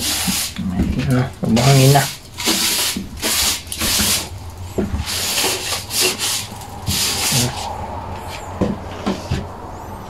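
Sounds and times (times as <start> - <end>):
brush strokes hissing: 5.0 - 8.0.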